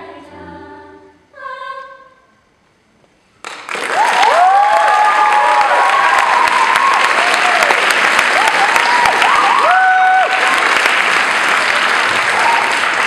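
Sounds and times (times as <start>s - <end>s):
audience applauding: 3.4s - 13.0s
shouts and whoops: 4.0s - 7.8s, 8.4s - 10.5s, 12.2s - 12.8s.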